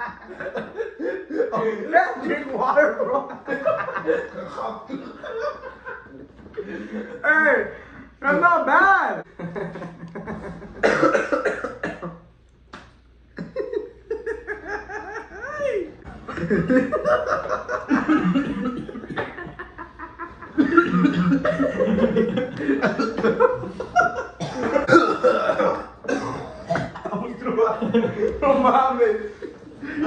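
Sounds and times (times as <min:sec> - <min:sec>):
young man laughing hard: 0:00.0 - 0:02.0, 0:03.4 - 0:07.2, 0:13.4 - 0:26.0
man coughing: 0:10.8 - 0:12.3, 0:18.0 - 0:19.5, 0:20.6 - 0:21.8, 0:24.3 - 0:27.4.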